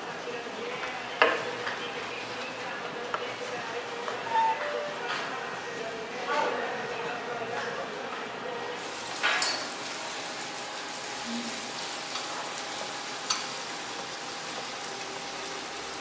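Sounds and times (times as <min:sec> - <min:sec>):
sizzling hiss: 0:08.8 - 0:16.0.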